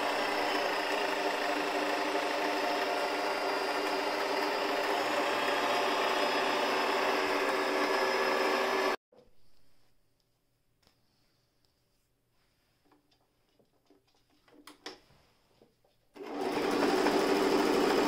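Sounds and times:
sewing machine running: 0.0s - 9.0s, 16.2s - 18.0s.

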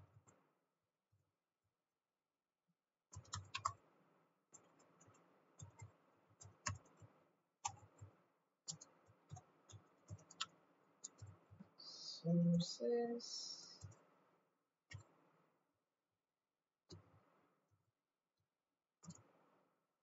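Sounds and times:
computer keyboard typing: 3.1s - 3.8s, 4.6s - 7.0s, 7.6s - 8.1s, 8.7s - 11.4s
person speaking: 11.8s - 13.8s.

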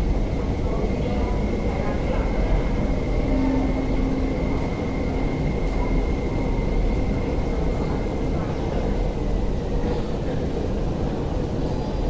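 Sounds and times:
thin steady whine: 0.0s - 8.4s
train rumbling through station: 0.0s - 12.0s.

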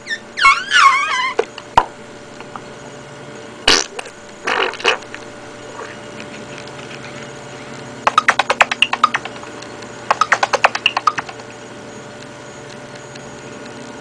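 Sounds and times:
small animal squeaky chirps: 0.0s - 1.4s
sharp clicks: 8.1s - 11.5s.

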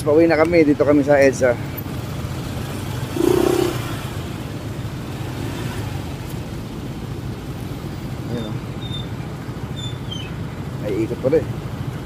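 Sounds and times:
scooter engine: 1.6s - 8.3s.

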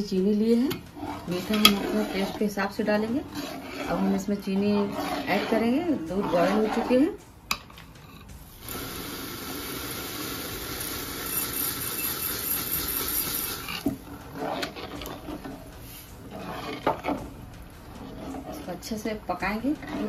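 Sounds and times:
ladle scraping metal pot: 0.0s - 8.8s, 11.2s - 20.0s
sugar pouring hiss: 8.5s - 14.1s.

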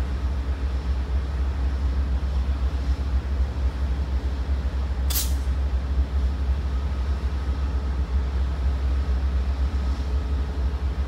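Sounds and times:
diesel locomotive idling: 0.0s - 11.0s
air brake hiss: 5.1s - 5.5s.

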